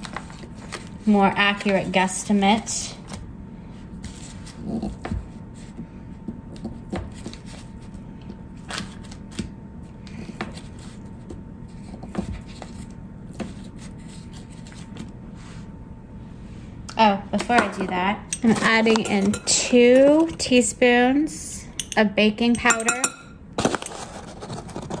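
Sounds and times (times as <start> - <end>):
knife tapping and scraping: 21.8 - 23.3.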